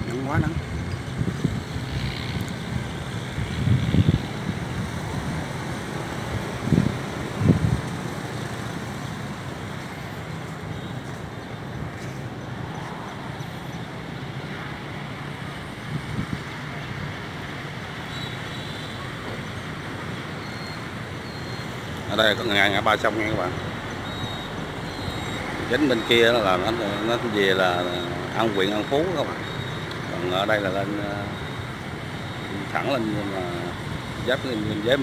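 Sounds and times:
wind buffeting the microphone: 0.0s - 9.5s, 15.6s - 16.7s
steady outdoor rumble: 0.0s - 35.0s.

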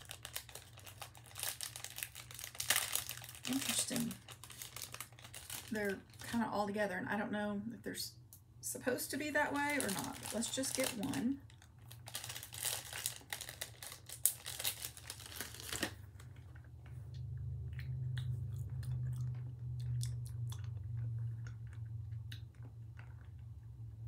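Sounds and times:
plastic candy bag crinkling: 0.0s - 6.7s, 9.0s - 16.8s
low steady hum: 0.0s - 24.0s.

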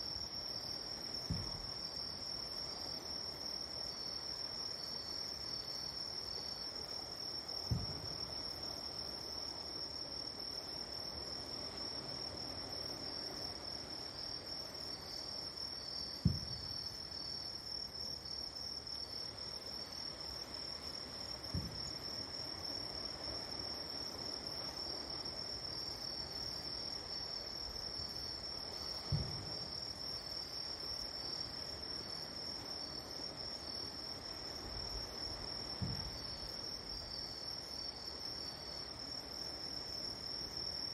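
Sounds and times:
distant fireworks booms: 1.2s - 1.8s, 7.6s - 8.2s, 16.2s - 16.9s, 21.5s - 22.0s, 29.0s - 29.7s, 35.8s - 36.4s.

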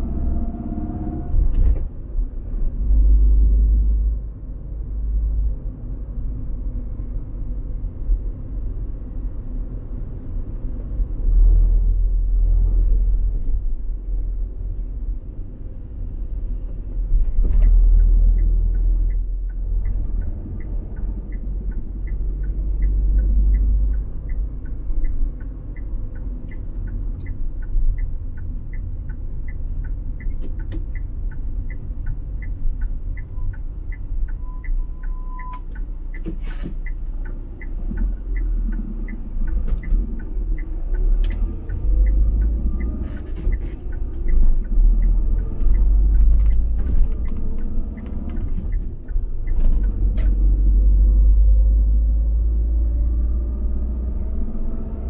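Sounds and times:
car road noise rumble: 0.0s - 55.0s
turn signal ticking: 16.0s - 55.0s.

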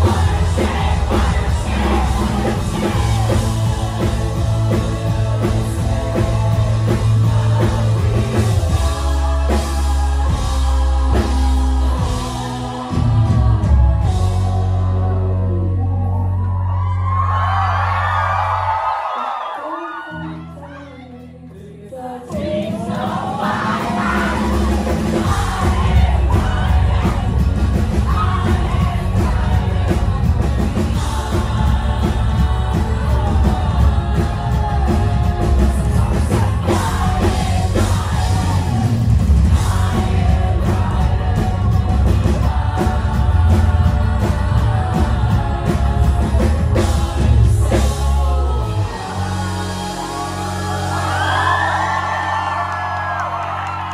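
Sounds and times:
drums: 0.0s - 20.6s, 22.0s - 53.9s.

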